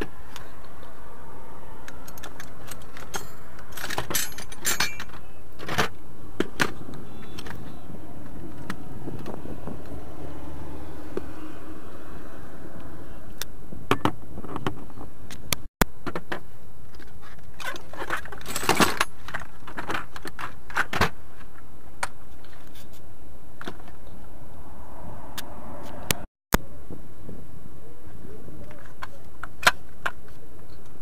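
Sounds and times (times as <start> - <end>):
metal hand tools clinking: 2.2 - 5.2.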